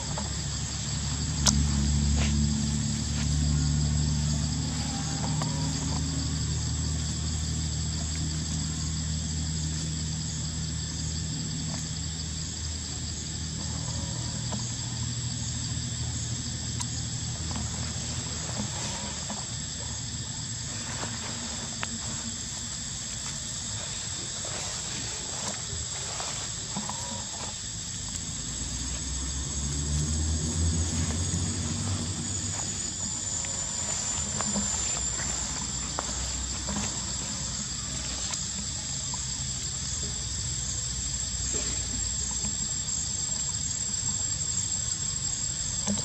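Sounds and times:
high-pitched insect chorus: 0.0 - 46.0.

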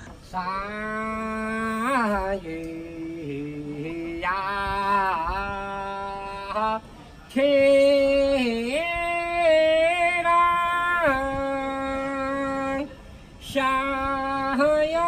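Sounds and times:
person singing unaccompanied: 0.0 - 15.0.

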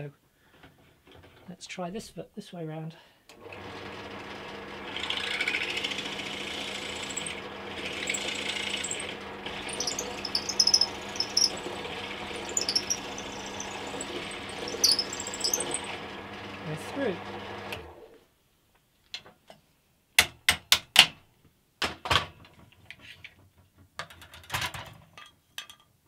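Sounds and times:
drill press motor hum: 3.4 - 18.1
drill bit cutting wood: 3.5 - 17.8
high squeaks and chirps: 7.0 - 16.0.

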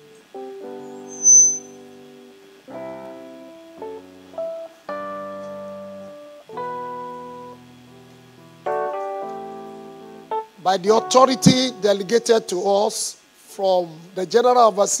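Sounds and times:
slow soft instrumental chords: 0.0 - 13.6
high-pitched squeal: 0.9 - 1.8.

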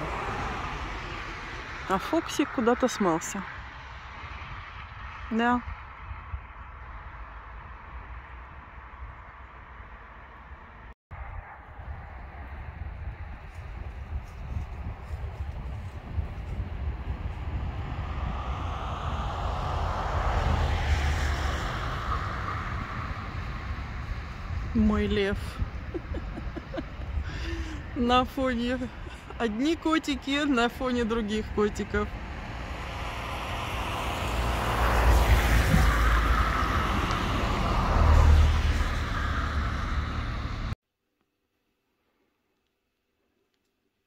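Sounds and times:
vehicle passing: 0.0 - 14.2, 14.8 - 40.8
wind rumble on microphone: 0.0 - 40.8.

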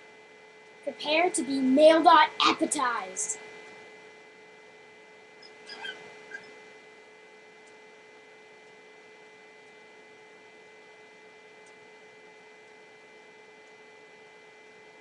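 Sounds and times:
electrical hum and hiss: 0.0 - 15.0.

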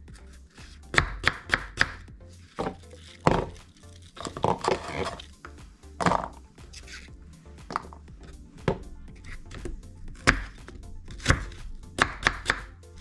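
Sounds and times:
knife chopping on wooden board: 0.9 - 2.0, 9.5 - 12.7.

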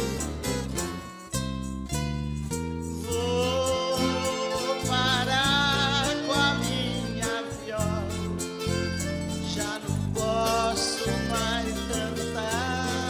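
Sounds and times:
accordion: 0.0 - 13.0
acoustic country music: 0.0 - 13.0.

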